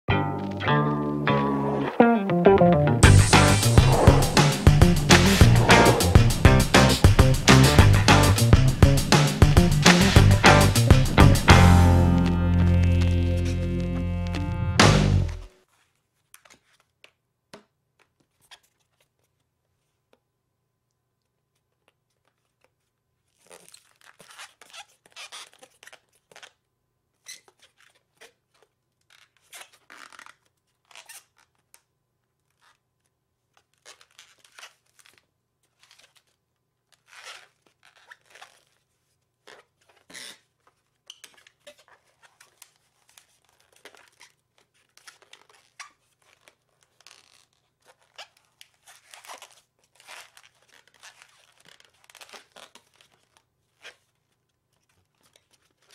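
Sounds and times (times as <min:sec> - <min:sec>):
balloon being twisted: 0:03.2 - 0:08.5, 0:33.5 - 0:40.5.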